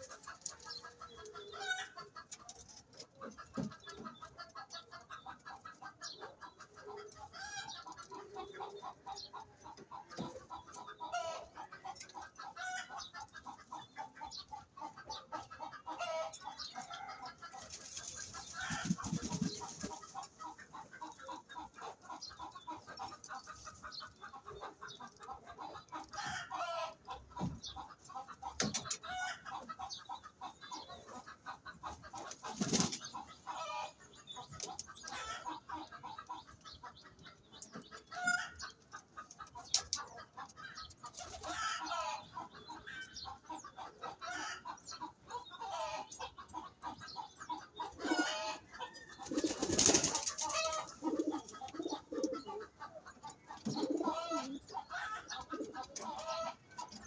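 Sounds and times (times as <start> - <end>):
pigeons cooing: 40.8 - 57.0.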